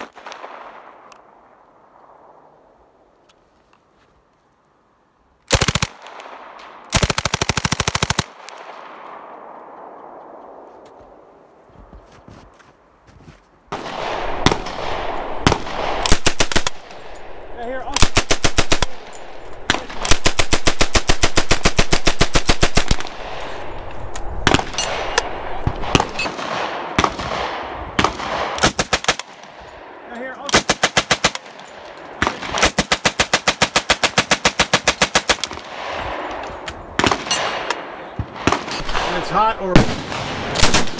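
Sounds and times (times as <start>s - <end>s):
submachine gun bursts with echo: 5.5s - 6.2s.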